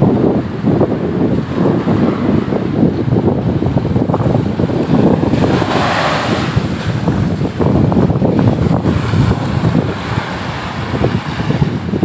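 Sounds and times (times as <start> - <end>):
surf washing up beach: 0.0 - 12.0
wind buffeting microphone: 0.0 - 12.0
wave foam hissing: 4.1 - 11.9.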